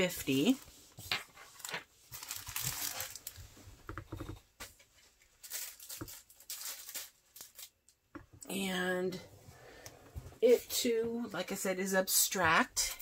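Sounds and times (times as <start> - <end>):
plastic and paper crinkling: 0.0 - 3.7, 4.9 - 8.0.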